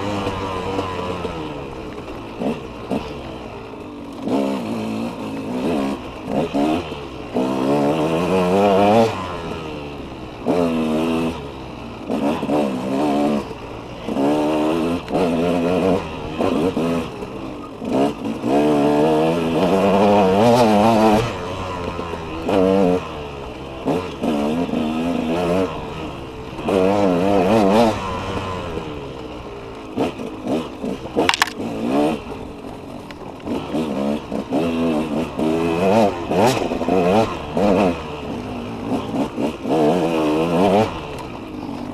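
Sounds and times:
dirt bike engine revving: 0.0 - 41.9.

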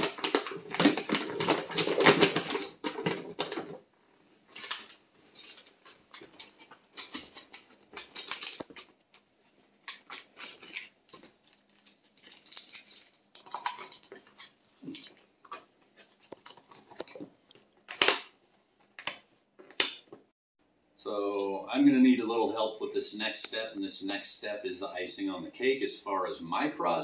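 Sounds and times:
plastic bag crinkling: 0.0 - 3.9, 4.5 - 19.0.

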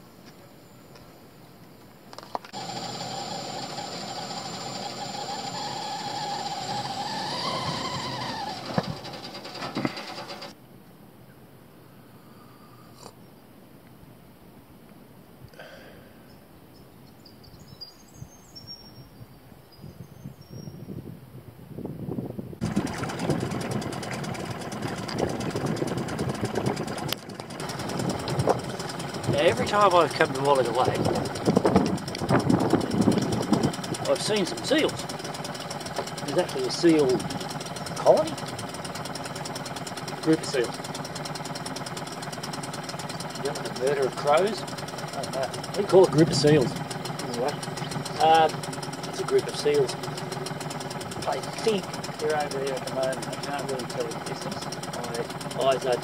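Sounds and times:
boat motor chugging: 2.3 - 10.6, 22.6 - 56.0
kettle whistling: 2.6 - 10.5
sharp clicks: 30.1 - 55.9.

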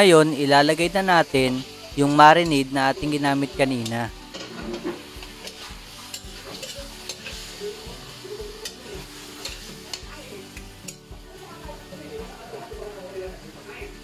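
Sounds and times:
chicken sizzling in a wok: 0.0 - 14.0
metal spatula scraping a pan: 2.1 - 11.0.

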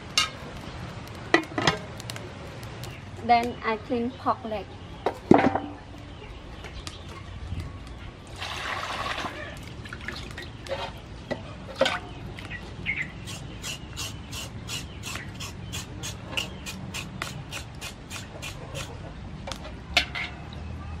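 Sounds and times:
knife scraping pork skin: 13.2 - 18.9.

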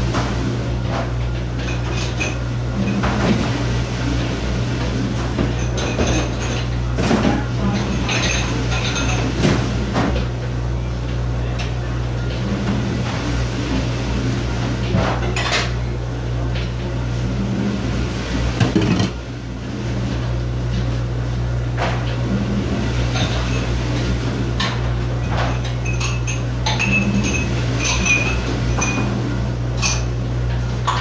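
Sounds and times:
low machine hum: 0.0 - 31.0
dishes and cutlery clattering: 7.6 - 9.3, 18.6 - 19.2.

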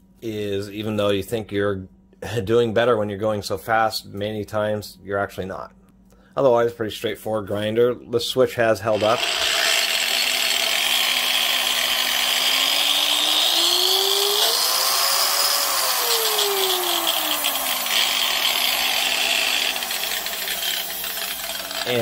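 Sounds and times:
angle grinder motor whine: 9.0 - 22.0.

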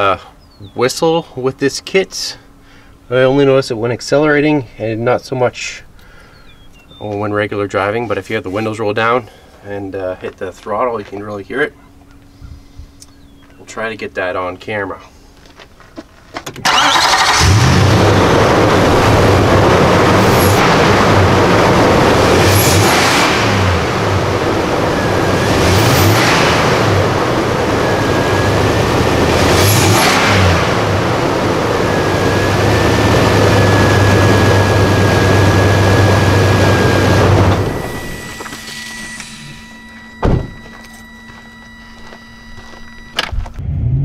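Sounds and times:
car engine revving: 16.7 - 44.0
thin steady whistle: 37.7 - 43.2.

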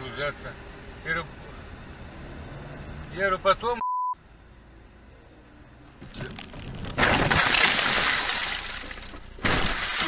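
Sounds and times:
car crash: 6.0 - 10.0
glass shattering: 6.4 - 10.0.

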